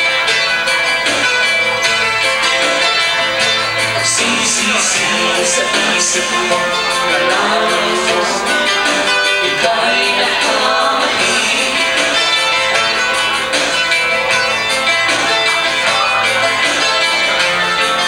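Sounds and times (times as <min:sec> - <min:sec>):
strummed acoustic guitar: 0:00.0 - 0:18.0
person singing: 0:03.8 - 0:18.0.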